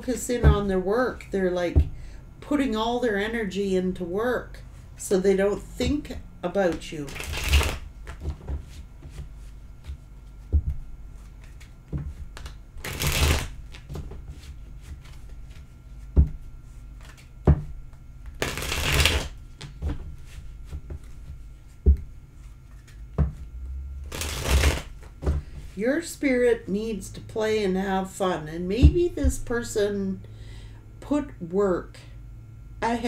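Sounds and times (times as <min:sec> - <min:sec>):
cards being shuffled: 0:06.7 - 0:10.5, 0:11.2 - 0:15.7, 0:16.6 - 0:17.3, 0:18.2 - 0:20.4, 0:22.4 - 0:25.7.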